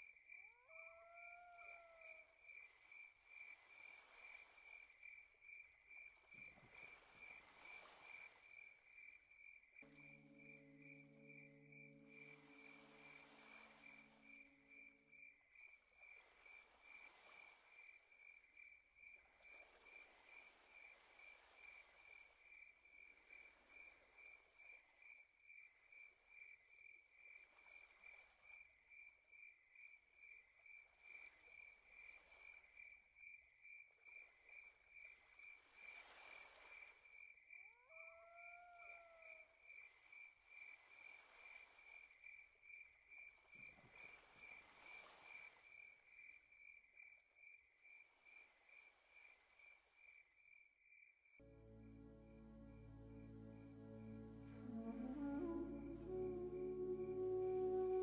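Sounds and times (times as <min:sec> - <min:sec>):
crickets chirping: 0:00.0 - 0:58.0
lower rising call: 0:52.4 - 0:58.0.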